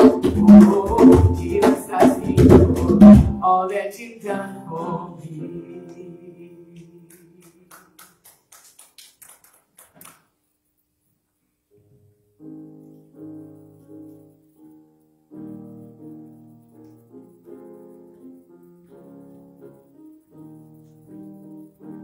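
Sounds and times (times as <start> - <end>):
piano chords: 0.0 - 7.7, 12.2 - 22.0.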